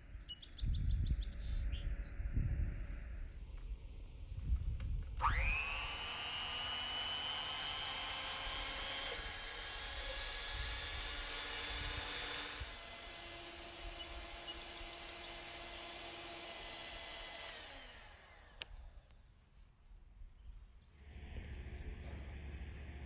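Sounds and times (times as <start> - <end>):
electric hand mixer whirring: 5.2 - 19.1.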